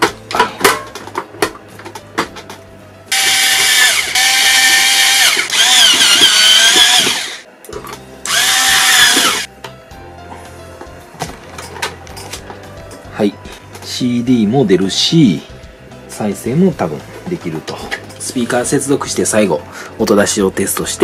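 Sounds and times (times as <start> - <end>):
electric screwdriver whine: 3.1 - 7.5, 8.2 - 9.5.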